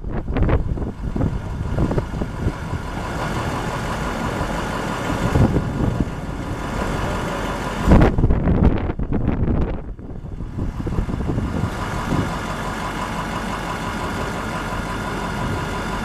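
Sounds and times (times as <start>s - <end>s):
diesel engine idling: 0.0s - 16.0s
wind buffeting microphone: 0.0s - 16.0s.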